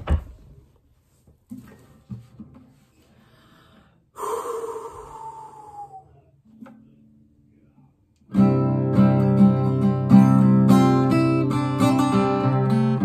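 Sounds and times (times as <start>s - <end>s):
acoustic guitar being handled: 0.0s - 3.1s, 6.5s - 7.0s
sharp intake of breath: 3.1s - 6.3s.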